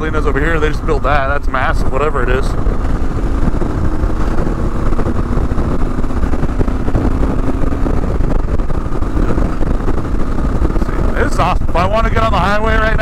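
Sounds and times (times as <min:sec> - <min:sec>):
motorcycle engine running: 0:00.0 - 0:13.0
wind rumble on microphone: 0:00.0 - 0:13.0.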